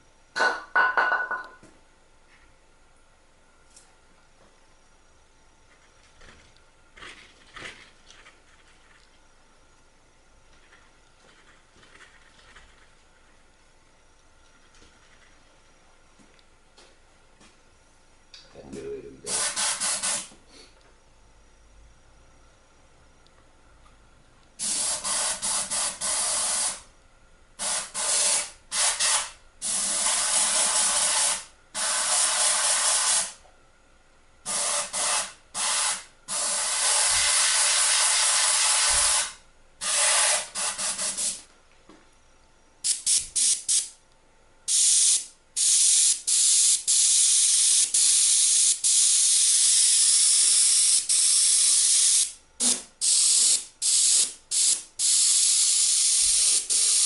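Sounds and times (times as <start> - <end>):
airbrush spraying hiss: 19.3 - 20.3, 24.6 - 26.9, 27.6 - 33.4, 34.5 - 41.5, 42.8 - 44.0, 44.7 - 57.0.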